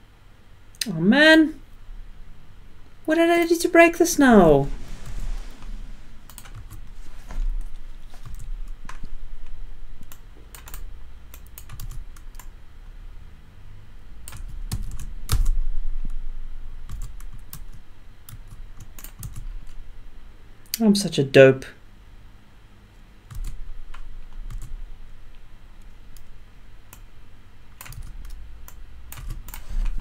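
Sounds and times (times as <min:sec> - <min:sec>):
computer keyboard typing: 0:06.3 - 0:06.8, 0:08.2 - 0:09.1, 0:10.0 - 0:12.5, 0:14.3 - 0:15.6, 0:16.9 - 0:19.5, 0:23.3 - 0:24.8, 0:27.8 - 0:29.7.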